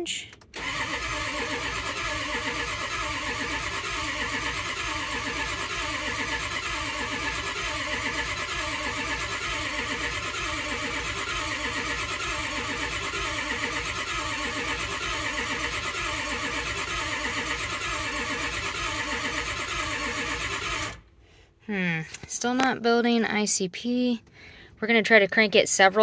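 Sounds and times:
diesel engine starter cranking: 0.3s - 21.1s.

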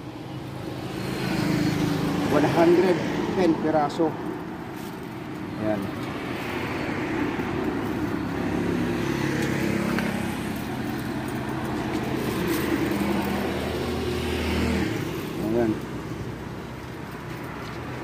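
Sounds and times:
engine humming: 3.4s - 18.0s.

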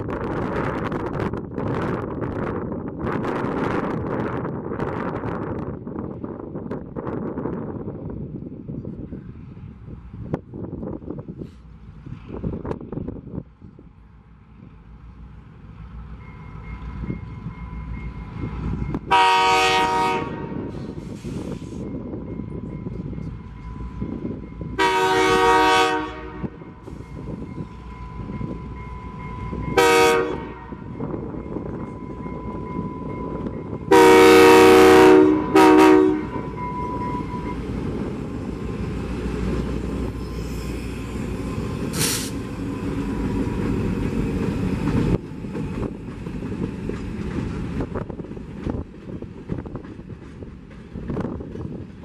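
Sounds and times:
diesel locomotives rumbling past: 0.0s - 52.0s
diesel locomotive horn blasts: 18.9s - 21.8s, 24.7s - 27.2s, 29.5s - 31.2s, 33.9s - 37.6s.

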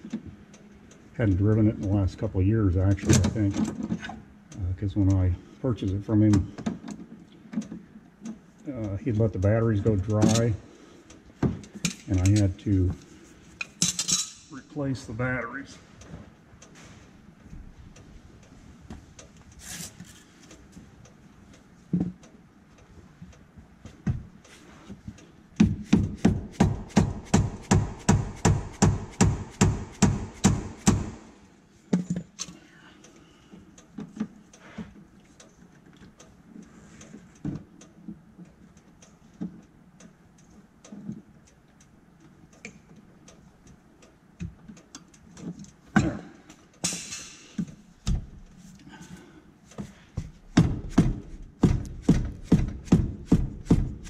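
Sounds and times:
rubber mallet knocking: 25.6s - 31.2s, 50.5s - 54.0s.

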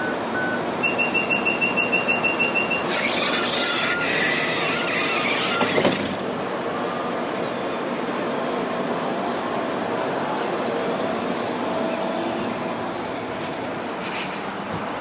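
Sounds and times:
rapid high warning beeps: 0.0s - 4.1s
sliding doors shutting: 2.5s - 6.4s.

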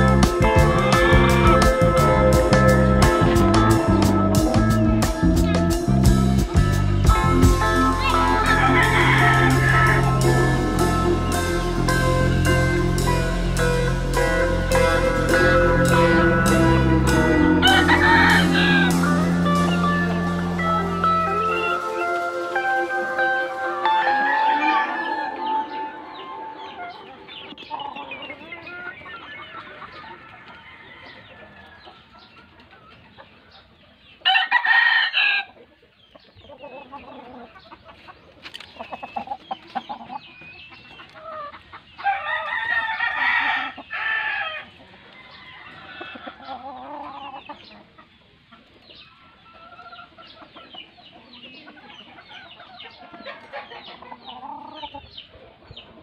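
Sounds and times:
chickens clucking and chirping: 0.0s - 56.0s
rooster crowing: 8.1s - 10.8s, 15.2s - 27.3s, 29.9s - 31.9s, 34.2s - 35.6s, 42.0s - 46.9s.

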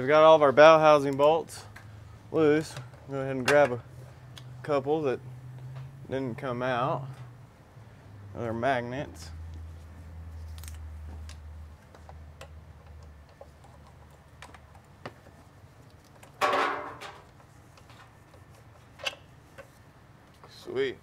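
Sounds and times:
metal bolts clattering: 16.3s - 17.3s.

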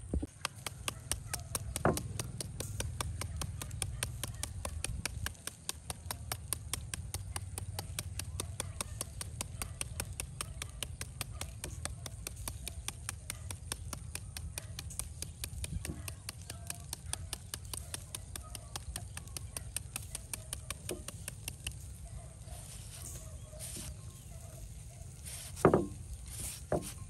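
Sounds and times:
knife chopping on cutting board: 0.3s - 14.0s, 25.4s - 27.0s.

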